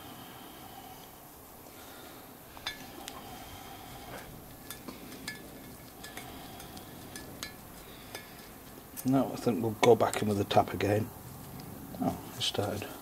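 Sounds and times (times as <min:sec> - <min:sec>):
metal tools clinking: 0:04.6 - 0:10.6.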